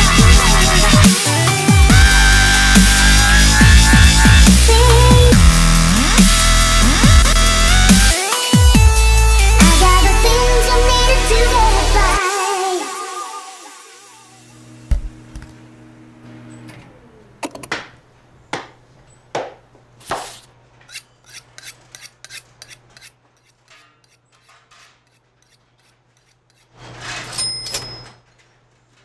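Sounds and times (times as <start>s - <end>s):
thump: 14.9s - 15.2s.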